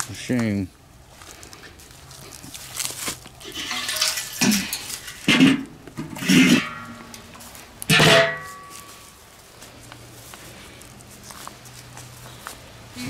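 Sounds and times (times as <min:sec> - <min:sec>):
grill lid clanking: 0:03.5 - 0:08.9.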